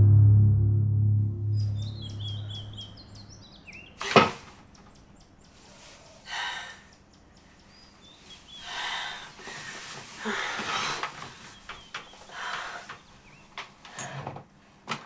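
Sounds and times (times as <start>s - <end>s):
small birds chirping: 1.6s - 10.5s, 11.1s - 13.8s.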